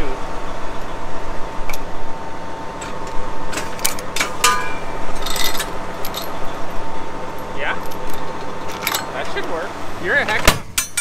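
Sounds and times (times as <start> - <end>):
steady machine hum: 0.0 - 11.0
metallic clanks and knocks: 2.8 - 6.6, 7.3 - 9.4, 10.4 - 11.0
short metal rattle: 2.8 - 6.6.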